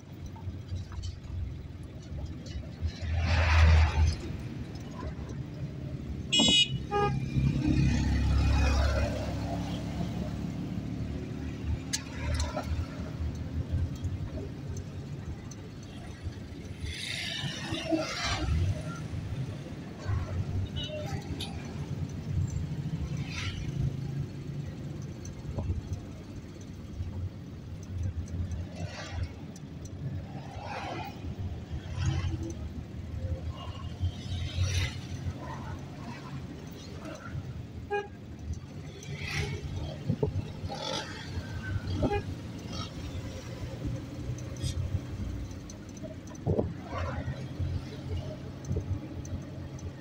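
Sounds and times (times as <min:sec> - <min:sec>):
street traffic rumbling: 0:00.0 - 0:50.0
short vehicle horn toots: 0:06.3 - 0:07.2.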